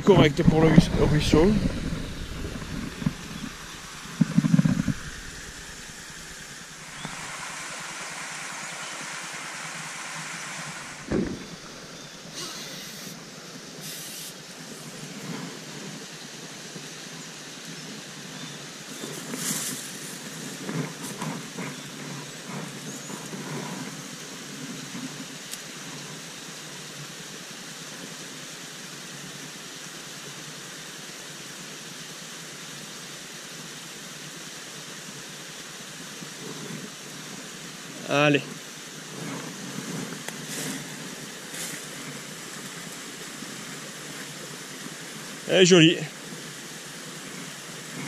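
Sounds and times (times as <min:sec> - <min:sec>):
stream running over rocks: 0:00.0 - 0:48.0
rustles and knocks: 0:00.4 - 0:07.2.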